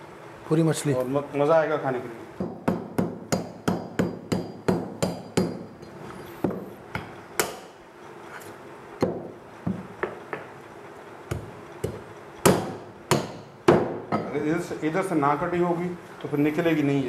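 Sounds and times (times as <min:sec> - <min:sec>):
meat cleaver chopping on wood block: 0:11.3 - 0:14.0.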